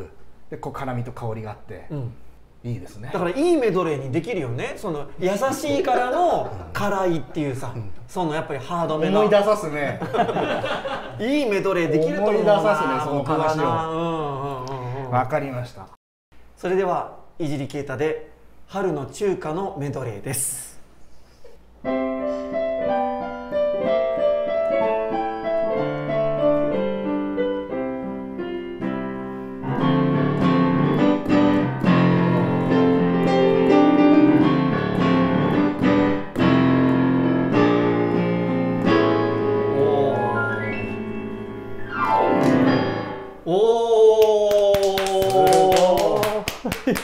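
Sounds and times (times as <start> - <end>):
digital piano playing: 21.9 - 43.5
people exclaiming: 43.5 - 46.4
people clapping: 44.1 - 47.0.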